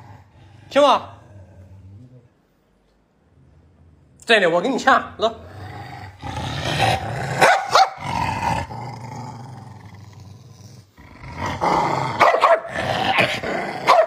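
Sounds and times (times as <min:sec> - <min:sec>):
dog growling: 0:00.0 - 0:02.5, 0:03.2 - 0:14.0
dog barking sharply: 0:07.4 - 0:08.0, 0:12.2 - 0:12.7.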